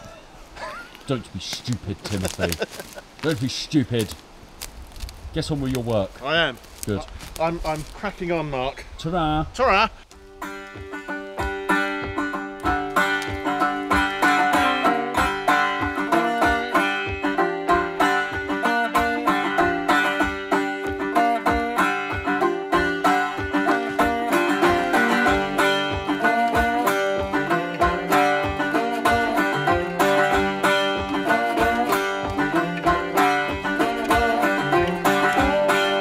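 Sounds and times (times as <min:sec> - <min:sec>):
plucked-string tune with beat: 0:10.1 - 0:36.0.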